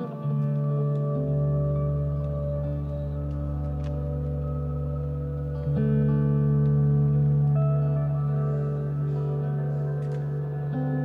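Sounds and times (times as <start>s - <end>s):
slow ambient chords: 0.0s - 11.0s.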